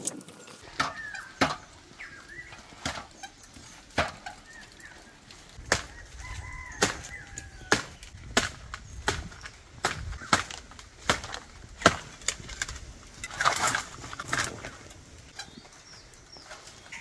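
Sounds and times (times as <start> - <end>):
thin bird calls: 0.6 - 8.2, 15.2 - 17.0.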